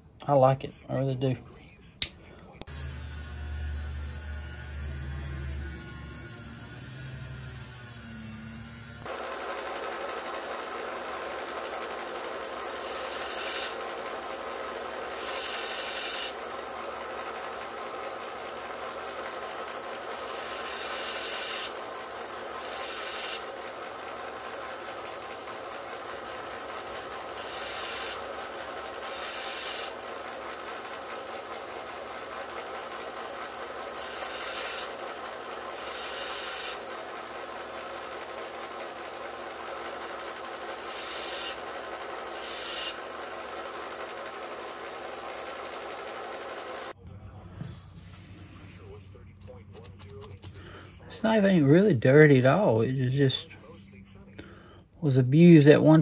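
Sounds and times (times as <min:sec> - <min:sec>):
grinding wheel hissing on steel: 0:02.7 - 0:47.0
handheld grinder running: 0:02.7 - 0:47.0.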